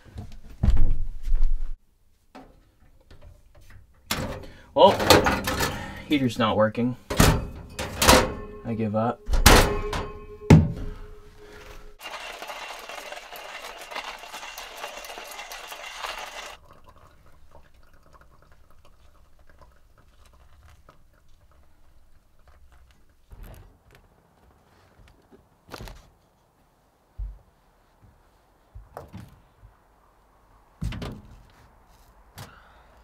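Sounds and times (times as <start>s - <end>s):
water pouring into coffee dripper: 12.0s - 21.0s.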